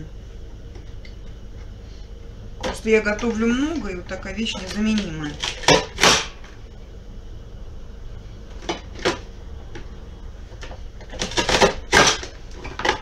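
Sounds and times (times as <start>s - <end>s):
vegetable chopper clacking: 5.3s - 6.4s.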